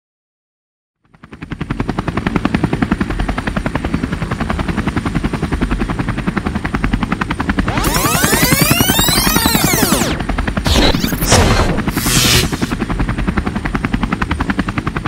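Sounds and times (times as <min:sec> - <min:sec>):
engine running with whine: 0:07.4 - 0:13.0
sweeping rising and falling tones: 0:07.6 - 0:12.8.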